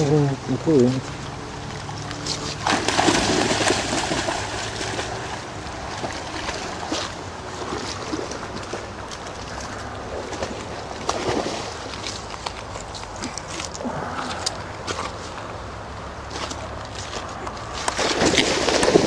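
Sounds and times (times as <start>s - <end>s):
dog splashing through water: 1.6s - 13.8s, 17.8s - 19.0s.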